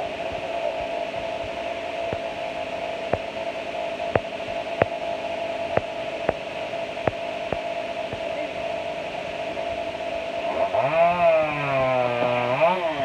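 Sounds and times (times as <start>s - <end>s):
droning hum: 0.0s - 13.0s.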